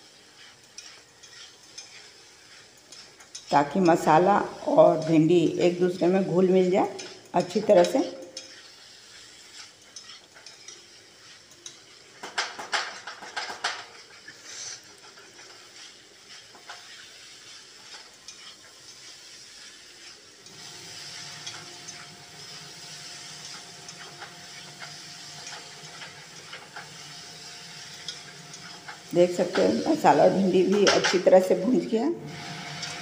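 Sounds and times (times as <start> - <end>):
faint frying sizzle: 0.0 - 33.0
spatula scraping metal pan: 0.0 - 33.0
spatula clacking against pan: 0.4 - 4.2, 6.9 - 20.2.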